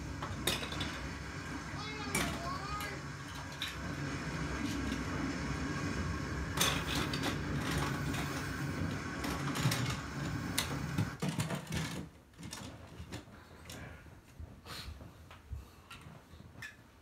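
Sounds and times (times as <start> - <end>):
small motor humming: 0.0 - 11.2.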